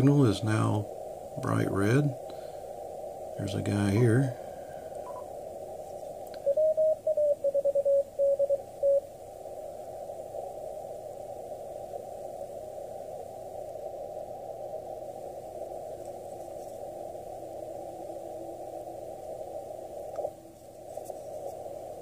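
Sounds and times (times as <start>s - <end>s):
radio band hiss: 0.0s - 22.0s
morse code beeping tone: 5.1s - 5.3s, 6.4s - 9.0s.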